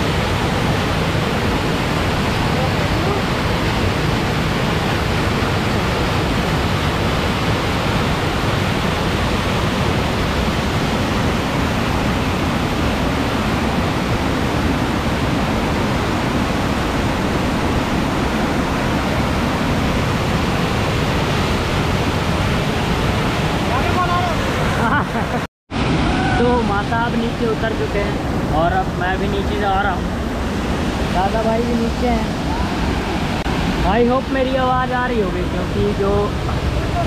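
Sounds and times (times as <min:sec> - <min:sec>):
waterfall rushing: 0:00.0 - 0:37.0.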